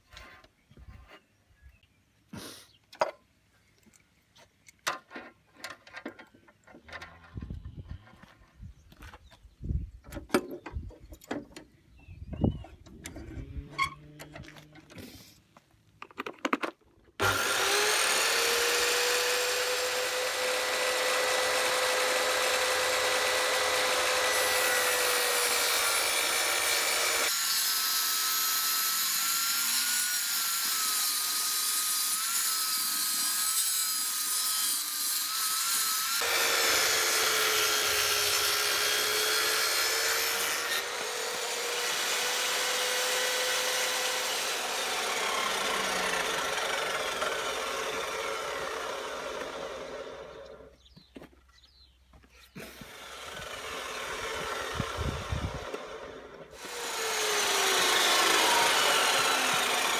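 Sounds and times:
small clicks and knocks: 0:16.0 - 0:16.8
table saw ripping wood: 0:17.2 - 0:50.6, 0:52.5 - 0:59.9.

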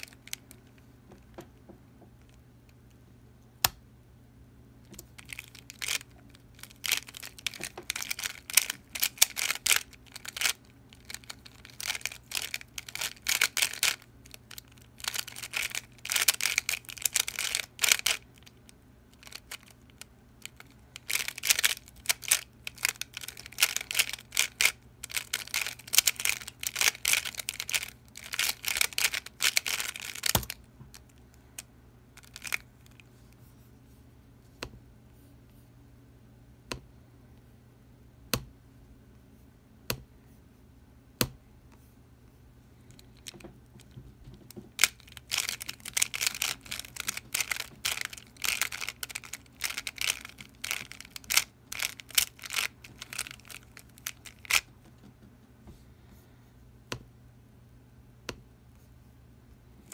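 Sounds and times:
plastic puzzle clicking: 0:04.9 - 0:18.2, 0:19.2 - 0:31.0, 0:44.8 - 0:54.7.

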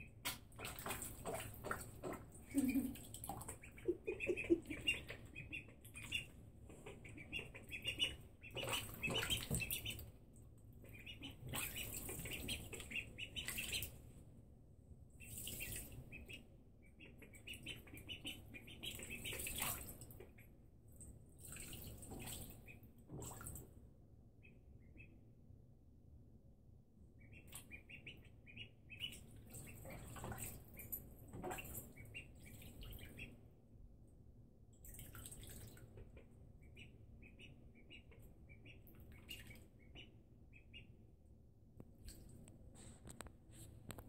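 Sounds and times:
ducklings peeping: 0:00.1 - 0:10.2, 0:10.8 - 0:14.0, 0:15.2 - 0:20.6, 0:24.4 - 0:25.2, 0:27.2 - 0:33.4, 0:35.9 - 0:41.0
water splashes: 0:00.3 - 0:04.8.

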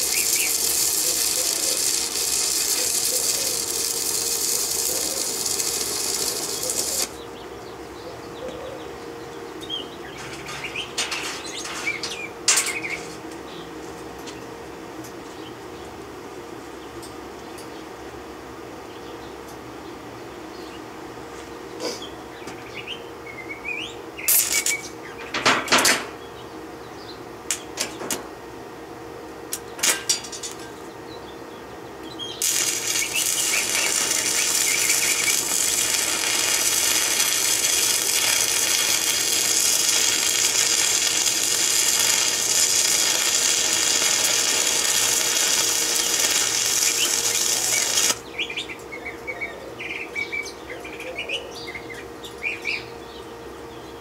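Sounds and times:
welding arc crackling: 0:00.0 - 0:07.2, 0:24.3 - 0:24.9, 0:32.4 - 0:48.2
faint birds chirping: 0:00.0 - 0:25.4, 0:26.2 - 0:27.8, 0:30.7 - 0:54.0.

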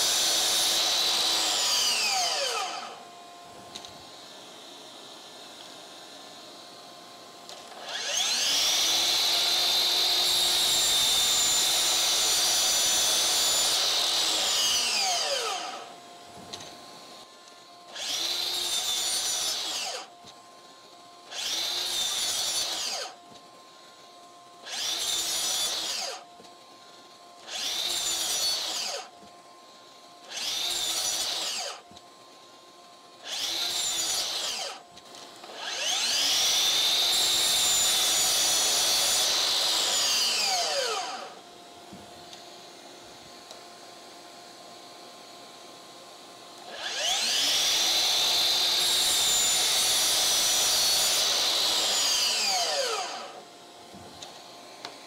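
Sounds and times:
miter saw cutting wood: 0:00.0 - 0:41.5, 0:46.6 - 0:55.0
saw blade braking whine: 0:00.0 - 0:41.5, 0:46.6 - 0:53.5.

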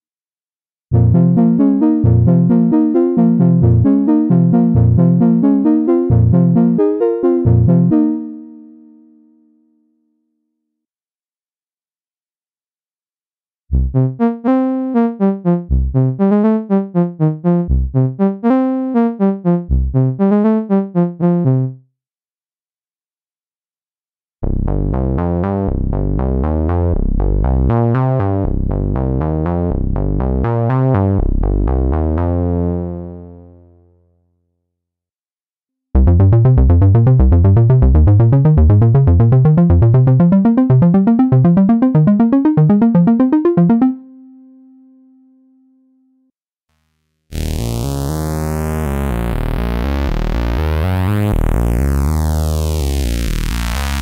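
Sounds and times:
synthesizer phrases: 0:36.0 - 0:44.8.

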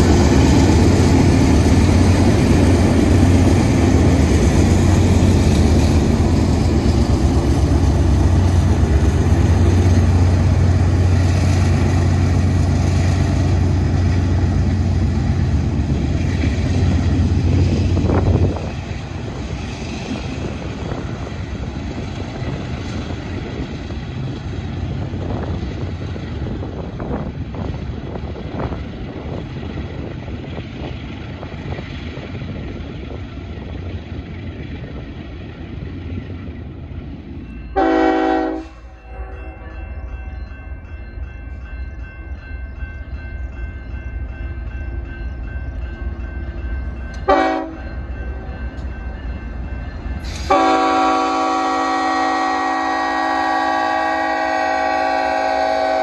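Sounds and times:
locomotive air horn: 0:37.8 - 0:39.4, 0:47.3 - 0:47.8, 0:50.3 - 0:56.0.

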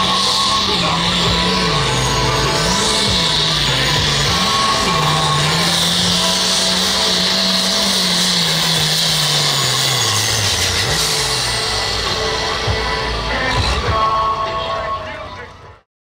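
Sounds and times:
tractor engine at full power: 0:00.0 - 0:15.9.

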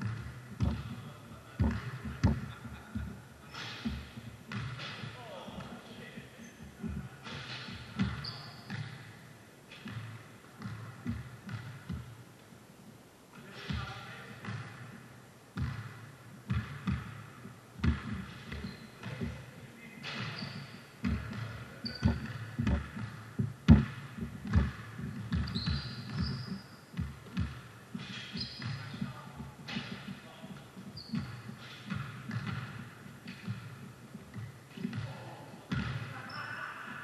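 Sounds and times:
basketball bouncing on court: 0:00.0 - 0:05.7, 0:06.5 - 0:12.2, 0:13.7 - 0:37.0
sneaker squeaks: 0:06.3 - 0:12.1, 0:17.8 - 0:36.8.

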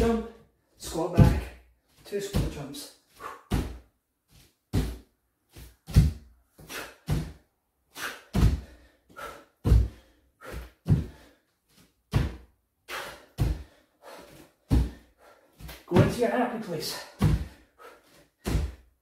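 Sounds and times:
bare feet thudding on wooden floor: 0:01.2 - 0:01.6, 0:02.2 - 0:07.4, 0:08.2 - 0:11.4, 0:12.1 - 0:16.2, 0:16.9 - 0:17.6, 0:18.4 - 0:18.9.

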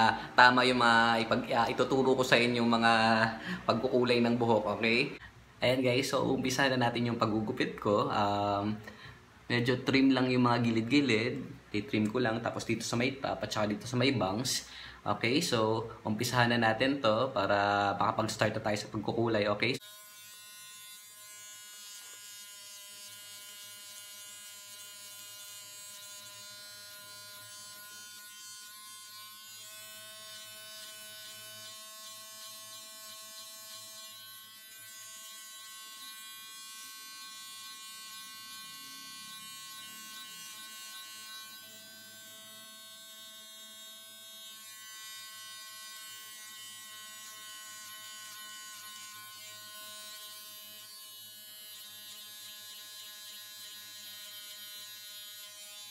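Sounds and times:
electric hair clipper buzzing: 0:19.7 - 0:55.9.

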